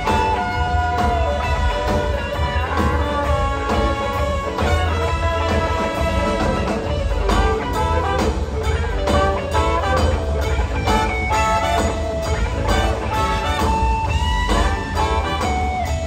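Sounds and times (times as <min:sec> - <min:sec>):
electric guitar bending notes: 0:00.0 - 0:16.0
live band playing: 0:00.0 - 0:16.0.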